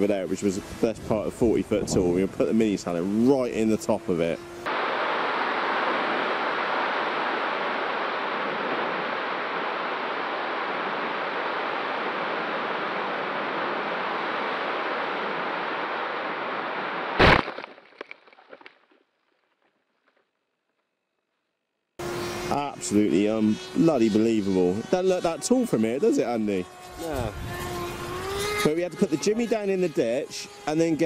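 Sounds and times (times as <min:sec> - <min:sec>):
strong wind on microphone: 0:00.6 - 0:02.5, 0:27.0 - 0:28.3.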